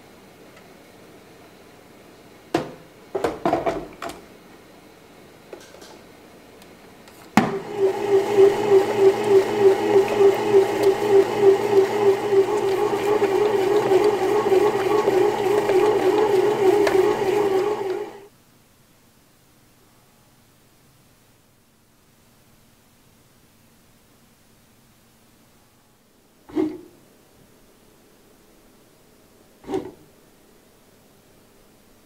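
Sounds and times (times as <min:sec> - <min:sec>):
bread maker motor kneading: 0:07.4 - 0:18.3.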